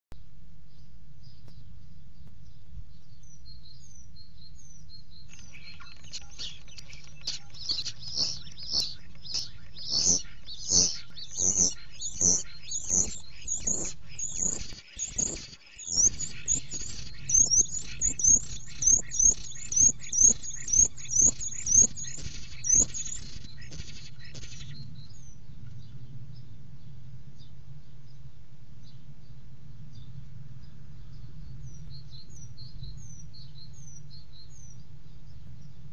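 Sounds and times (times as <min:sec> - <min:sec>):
steady low hum: 0:00.2 - 0:35.9
faint high chirps: 0:03.0 - 0:25.3
starling singing: 0:05.2 - 0:24.8.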